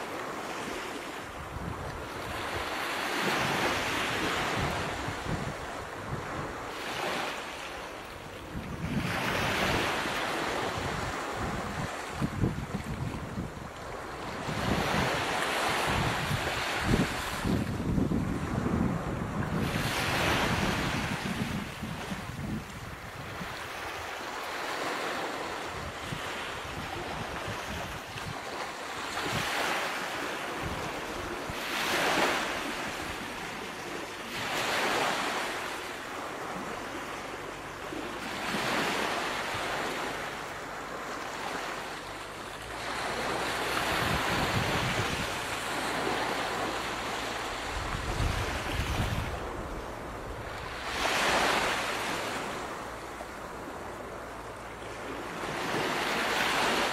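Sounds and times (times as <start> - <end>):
ocean waves washing in: 0.0 - 56.9.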